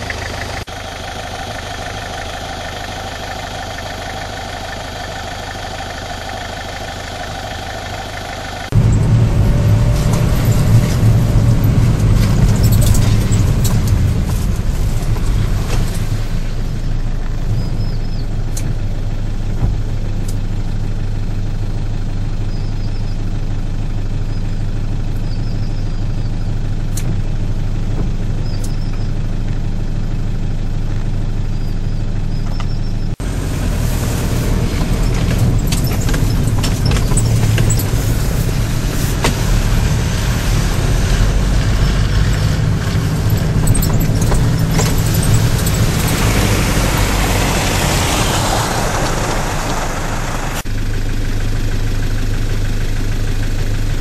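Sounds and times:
car engine and road noise: 0.0 - 54.0
tyre noise: 32.6 - 50.6.

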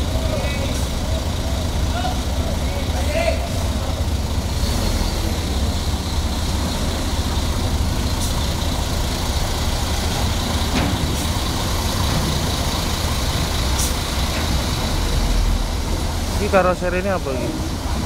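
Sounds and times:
diesel engine running low: 0.0 - 18.0.

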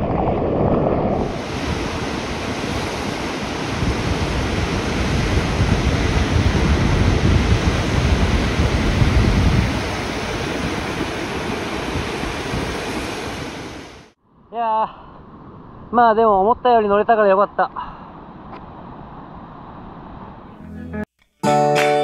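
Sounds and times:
wind buffeting microphone: 0.0 - 13.9
ocean surf breaking: 0.0 - 14.2.

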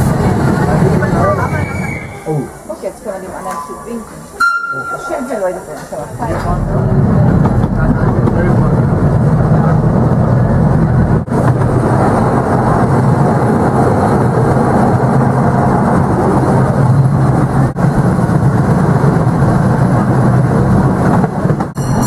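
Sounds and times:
small train rumbling on track: 0.0 - 22.0.

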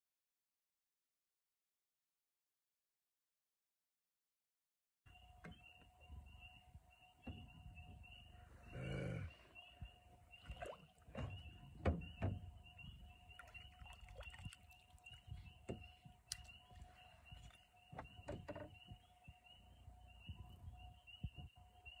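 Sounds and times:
knocks and thumps of boat gear: 10.6 - 12.8, 15.3 - 16.5, 17.3 - 19.0.

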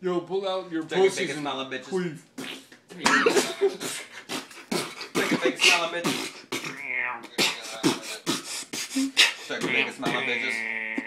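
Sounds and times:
beatboxing: 2.2 - 11.0.

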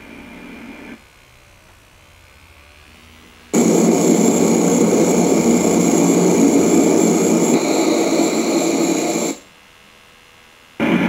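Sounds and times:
pressure relief valve hissing steam: 3.6 - 9.4.

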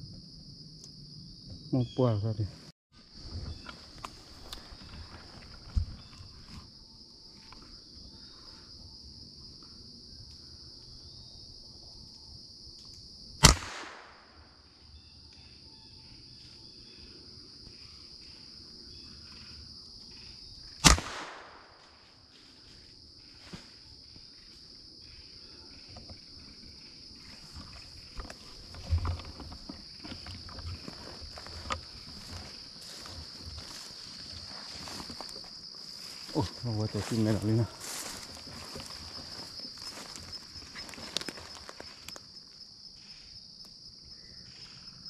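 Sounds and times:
high insect drone: 0.0 - 45.0
footsteps rustling through brush: 3.5 - 6.7, 27.1 - 42.4
echoing gunshots: 13.4 - 14.4, 20.8 - 21.8.

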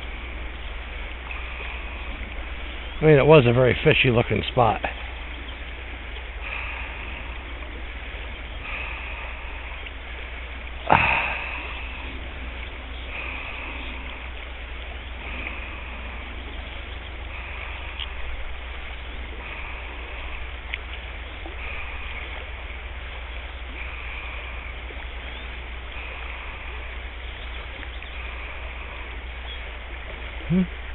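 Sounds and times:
river running over rocks: 0.0 - 30.9.

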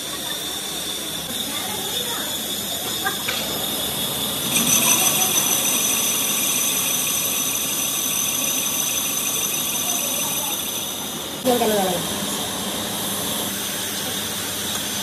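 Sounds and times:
lathe tool squealing: 0.0 - 11.5
lathe running: 0.0 - 15.0.

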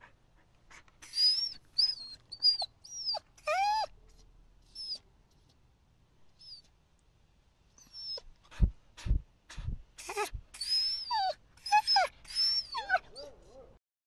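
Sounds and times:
dog whining: 1.0 - 3.9, 4.7 - 5.0, 6.4 - 6.6, 7.8 - 8.3, 10.0 - 13.7.

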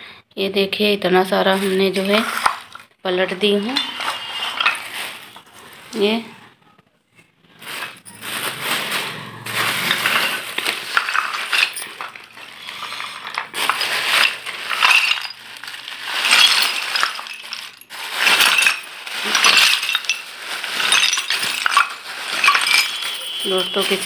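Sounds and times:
clay pieces clinking and scraping: 1.5 - 6.0, 7.7 - 24.0.

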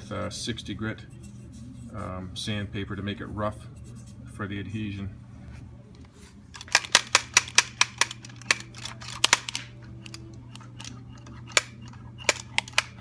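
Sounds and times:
plastic and metal clicks: 6.6 - 13.0.

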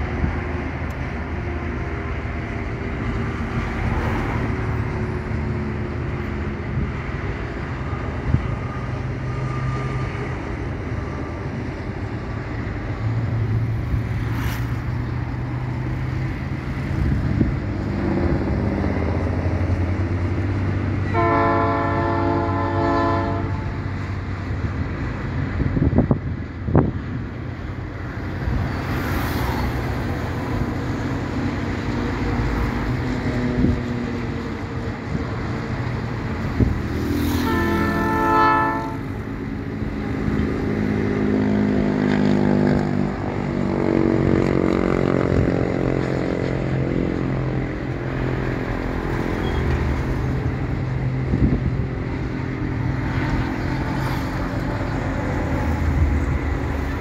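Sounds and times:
highway traffic passing: 0.0 - 57.0
vehicle horn: 21.0 - 23.8, 37.2 - 39.1.

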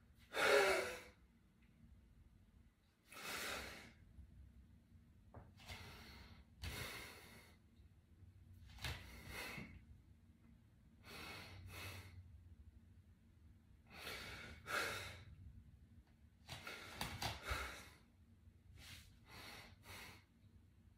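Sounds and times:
man breathing hard: 0.2 - 1.2, 3.1 - 4.0, 5.6 - 7.7, 8.9 - 9.8, 11.0 - 12.3, 13.8 - 15.4, 16.5 - 18.1, 18.8 - 20.4.

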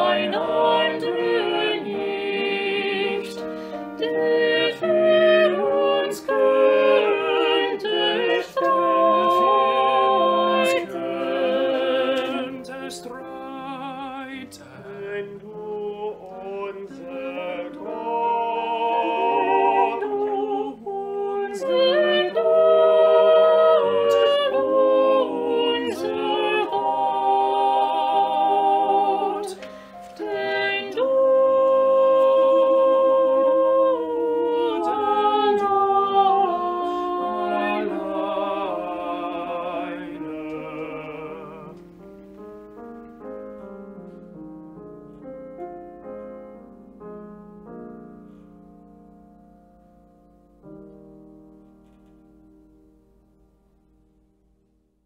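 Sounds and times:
vocal ensemble singing in harmony: 0.0 - 42.2.

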